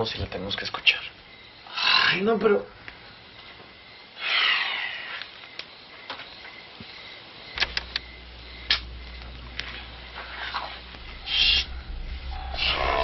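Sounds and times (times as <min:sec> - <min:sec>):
steady low hum: 0:06.6 - 0:13.0
sharp clicks: 0:07.5 - 0:09.7
rustling swoosh: 0:09.8 - 0:13.0.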